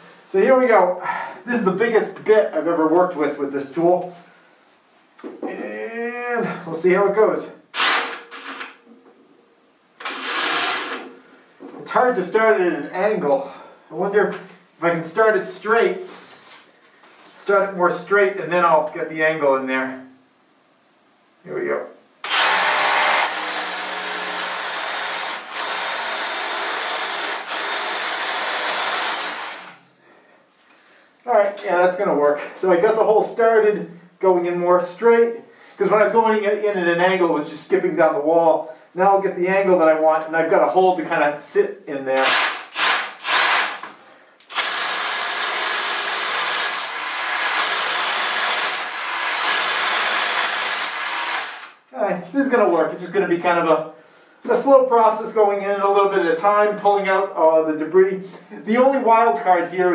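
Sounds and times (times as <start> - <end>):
drill boring into concrete: 7.8 - 8.6, 10.0 - 11.1, 22.2 - 29.8, 42.2 - 43.9, 44.5 - 51.8.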